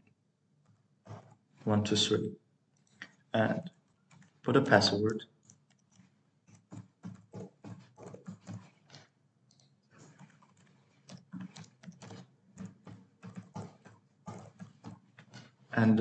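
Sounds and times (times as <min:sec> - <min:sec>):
computer keyboard keystrokes: 0:02.8 - 0:15.5.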